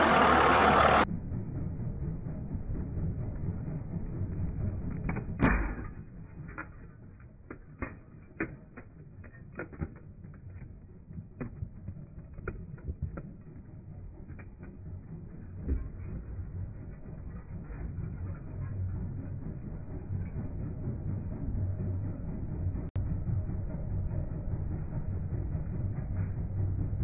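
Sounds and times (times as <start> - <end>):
diesel truck engine rumble: 0.0 - 7.5.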